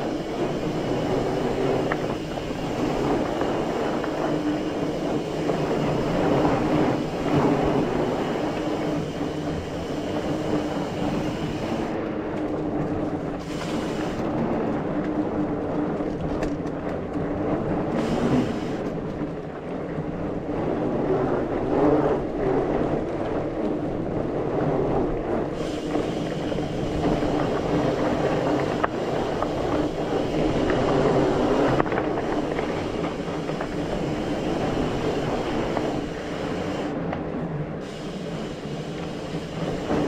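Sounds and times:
bike tyres rumbling on dirt: 0.0s - 40.0s.

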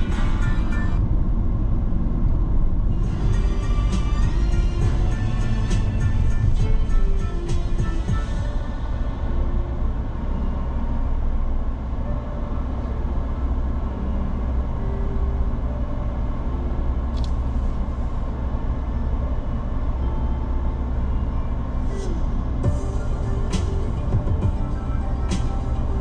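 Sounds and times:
car engine and tyres rumbling: 0.0s - 26.0s.

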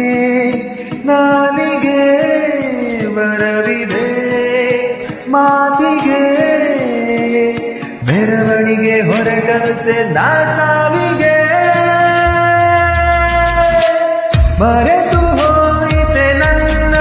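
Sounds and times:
man singing long held notes: 0.0s - 17.0s.

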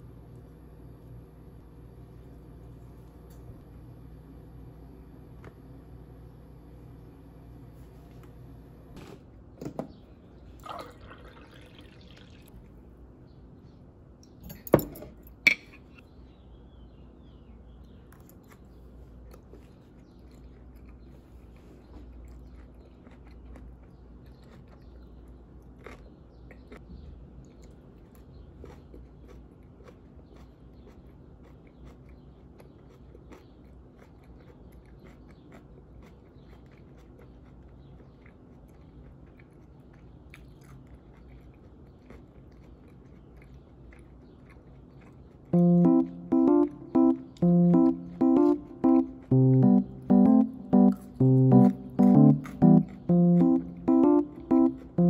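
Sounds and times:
water pouring into glass: 10.6s - 12.5s
chewing and crunching: 17.8s - 50.4s.

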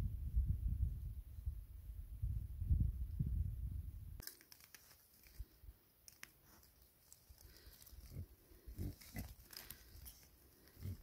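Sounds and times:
straw rustling and crackling: 4.2s - 11.0s
pigs grunting softly: 8.0s - 9.8s, 10.6s - 11.0s.

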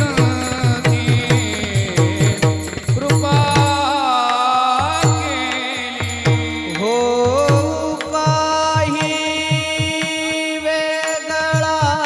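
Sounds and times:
drum beat: 0.0s - 10.5s, 11.6s - 12.0s
hand cymbals: 0.0s - 12.0s
man singing: 0.0s - 12.0s.

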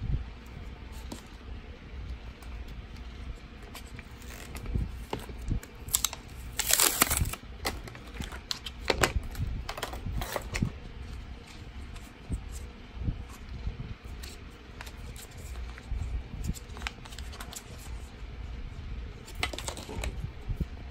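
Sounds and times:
plastic packaging crinkling: 3.7s - 10.7s.

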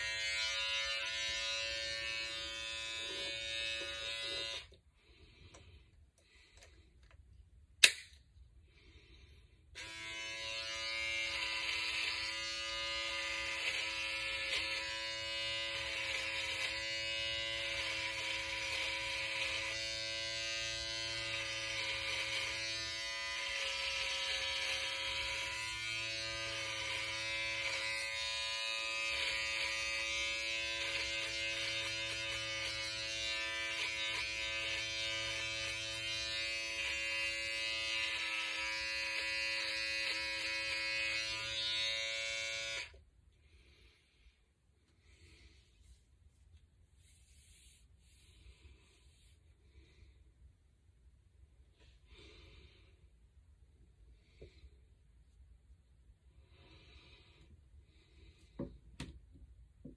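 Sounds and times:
electric trimmer buzzing: 0.0s - 4.8s, 9.7s - 43.0s
sharp click: 7.8s - 8.2s.

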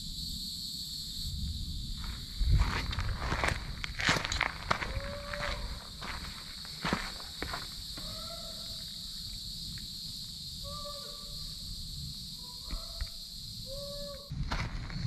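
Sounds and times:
insects droning: 0.0s - 15.0s
animal hoot-like calls: 4.8s - 5.8s, 8.0s - 8.8s, 10.6s - 11.5s, 12.4s - 14.3s.

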